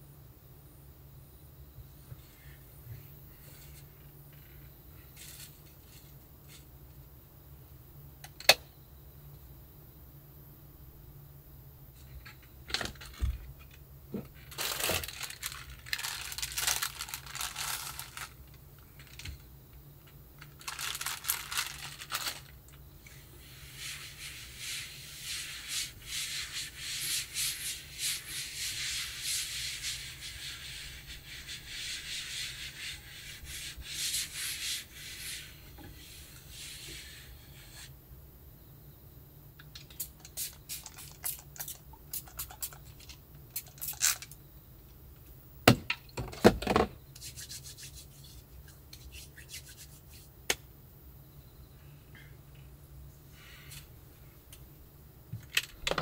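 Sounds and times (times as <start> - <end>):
cloth wiping a tabletop: 23.4 - 37.9.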